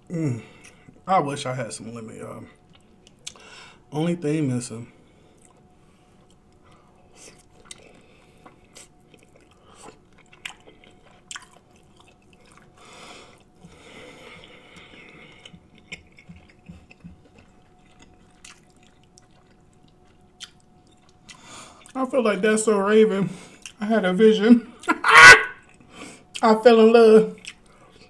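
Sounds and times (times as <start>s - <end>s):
person chewing and smacking: 2.6s - 3.4s, 5.3s - 22.0s, 23.5s - 23.8s, 25.6s - 26.5s, 27.4s - 28.0s.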